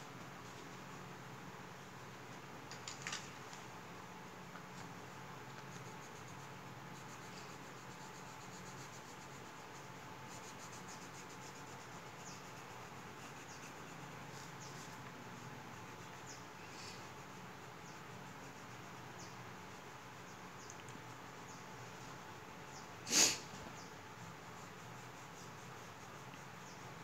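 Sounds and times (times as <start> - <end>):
steady hiss: 0.0 - 27.0
pencil scratching on paper: 5.5 - 16.4.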